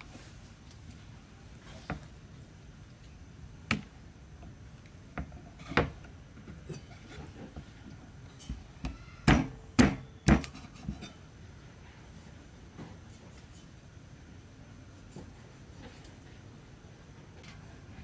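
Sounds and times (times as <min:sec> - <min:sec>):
knife chopping on wooden block: 0:08.9 - 0:10.6.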